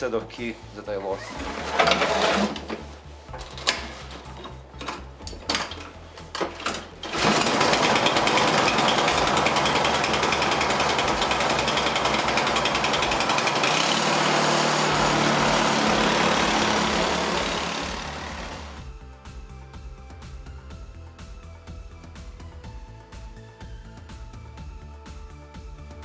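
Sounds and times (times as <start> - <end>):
snowblower engine running: 7.0 - 18.8.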